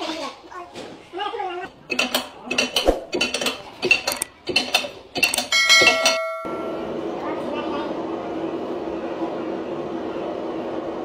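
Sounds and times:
sharp metal clanks: 1.9 - 6.8
notification ding: 5.6 - 6.9.

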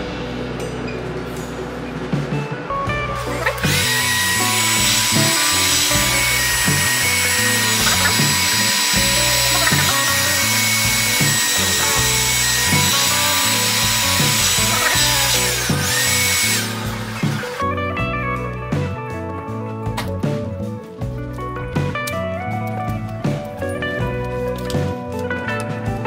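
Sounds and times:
background music: 0.0 - 26.0
heat gun blowing: 3.2 - 17.6.

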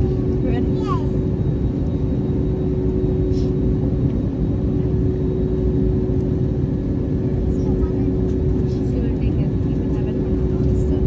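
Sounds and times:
constant hum: 0.0 - 11.0
jet cabin engine and air noise: 0.0 - 11.0.

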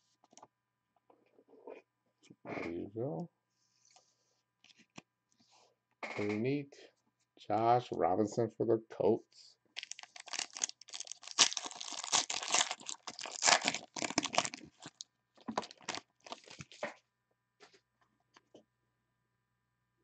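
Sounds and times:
foil wrapper tearing and crinkling: 9.8 - 16.8.

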